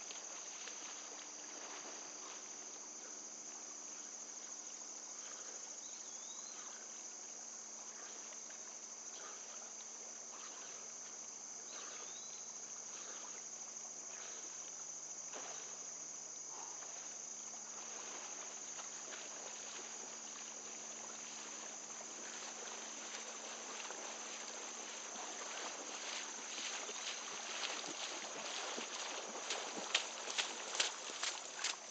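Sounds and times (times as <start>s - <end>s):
water sloshing and splashing: 0.0s - 5.6s, 16.6s - 31.9s
high insect chorus: 0.0s - 31.9s.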